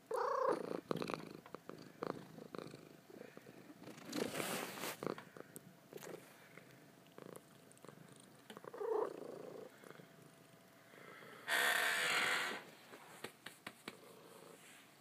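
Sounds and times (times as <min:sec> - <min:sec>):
cat purring: 0:00.0 - 0:11.6.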